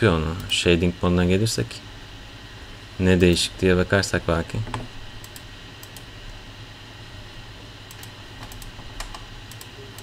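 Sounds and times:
low room hum: 0:00.0 - 0:10.0
computer mouse clicks: 0:04.7 - 0:06.1, 0:07.9 - 0:10.0.

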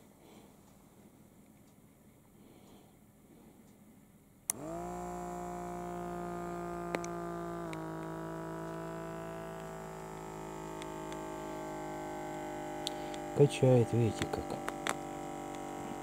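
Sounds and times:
electric air pump buzzing: 0:04.5 - 0:16.0.

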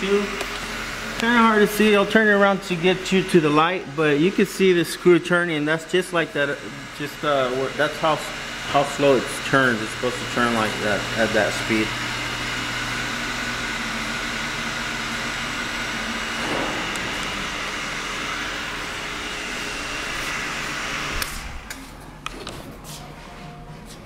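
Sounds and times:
brake lathe motor humming: 0:00.0 - 0:21.9
whining tones: 0:06.0 - 0:22.3.

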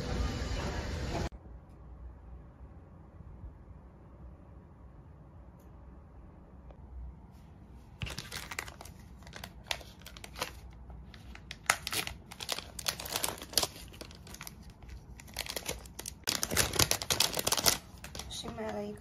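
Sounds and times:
plastic packaging crinkling: 0:08.0 - 0:19.0.

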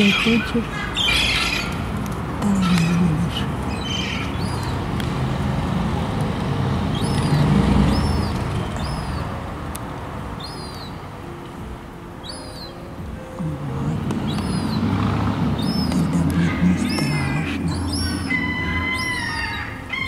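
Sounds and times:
high chirping bird calls: 0:00.0 - 0:04.9, 0:06.9 - 0:09.4, 0:10.4 - 0:11.0, 0:12.2 - 0:20.0
road traffic rumble: 0:00.0 - 0:20.0.

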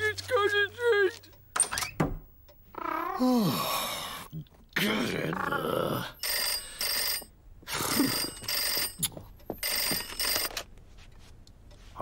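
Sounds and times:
mumbled voice: 0:02.7 - 0:06.2
rotary telephone ringing: 0:06.2 - 0:10.7.

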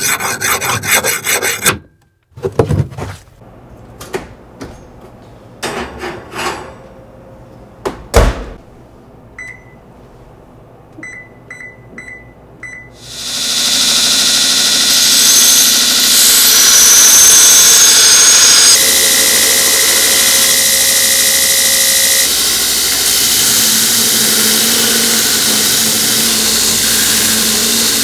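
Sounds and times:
oven control panel beeps: 0:09.4 - 0:09.8, 0:11.0 - 0:13.0.

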